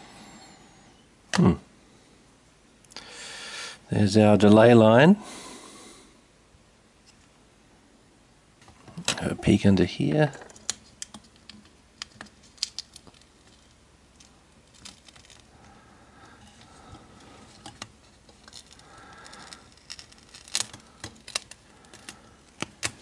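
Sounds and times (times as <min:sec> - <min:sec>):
fingers handling circuit board: 0:10.4 - 0:15.5, 0:16.4 - 0:23.0
adhesive cover peeling: 0:17.2 - 0:23.0.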